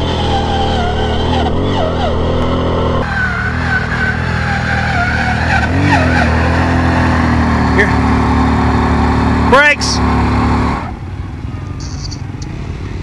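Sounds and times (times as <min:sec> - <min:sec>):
atv engine under load: 0:05.7 - 0:13.0.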